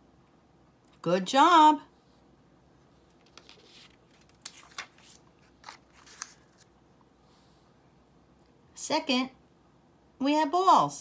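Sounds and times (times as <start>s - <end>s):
paper card rustling and tapping: 3.1s - 6.7s.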